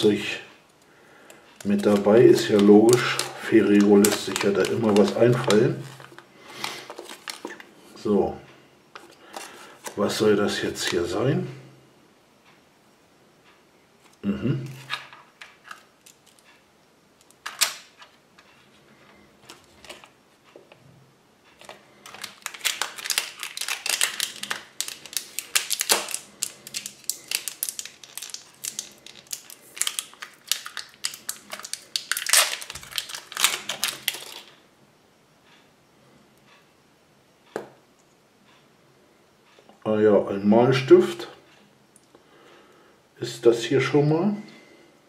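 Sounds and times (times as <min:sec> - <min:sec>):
plastic wrapper crackling: 0:01.3 - 0:08.0, 0:17.2 - 0:18.1, 0:21.6 - 0:34.6
plastic toy parts clicking: 0:21.6 - 0:34.5.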